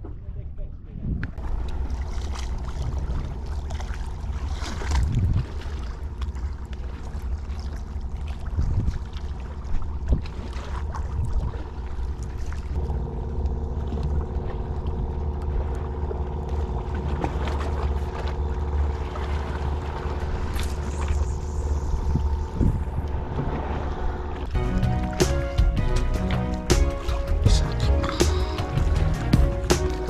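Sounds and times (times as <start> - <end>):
faint steady hum: 1.2 - 25.0
wind buffeting microphone: 4.2 - 6.0, 8.4 - 9.2, 19.1 - 24.5.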